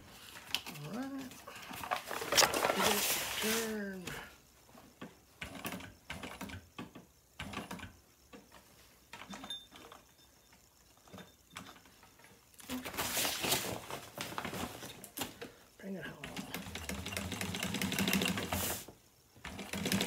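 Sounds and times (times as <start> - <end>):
sewing machine stitching: 5.4 - 6.7, 16.2 - 20.0.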